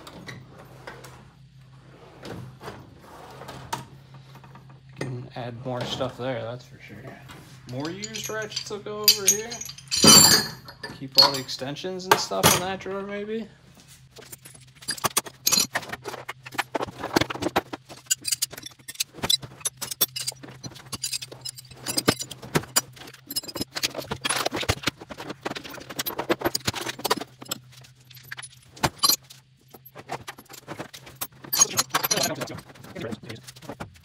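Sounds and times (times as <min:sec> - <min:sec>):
steady low hum: 0:03.8 - 0:34.0
metal tools clinking in drawers: 0:07.7 - 0:12.8, 0:14.2 - 0:34.0.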